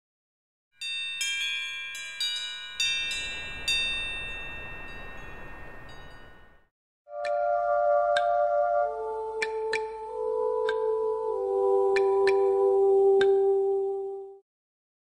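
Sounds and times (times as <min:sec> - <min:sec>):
chime-like struck notes: 0:00.8 - 0:07.4.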